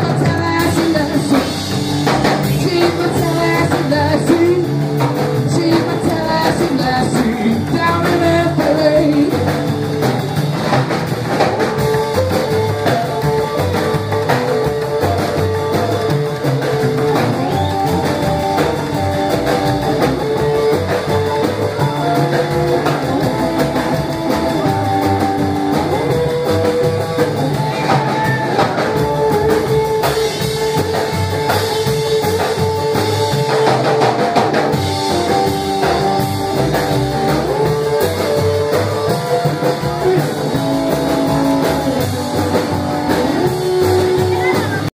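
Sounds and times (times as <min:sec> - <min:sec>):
man singing into a microphone: 0:00.0 - 0:09.7
upright double bass: 0:00.0 - 0:44.9.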